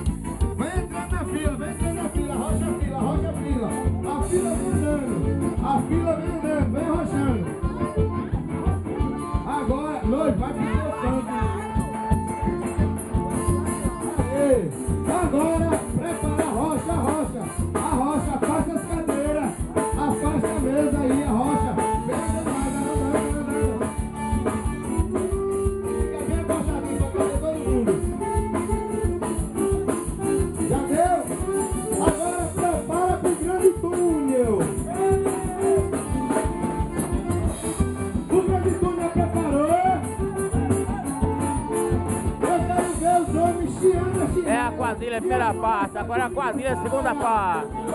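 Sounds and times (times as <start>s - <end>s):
accordion melody: 0.0s - 47.9s
bass guitar: 0.0s - 47.9s
shaker beat: 0.0s - 47.9s
person singing: 20.0s - 24.0s, 30.8s - 36.6s, 38.6s - 47.9s.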